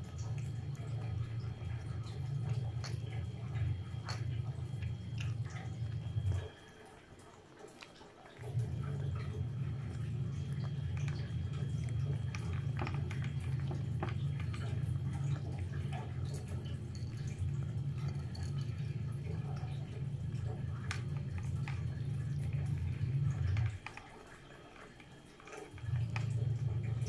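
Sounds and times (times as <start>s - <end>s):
low hum: 0.0s - 24.3s
cat eating wet food: 0.0s - 27.0s.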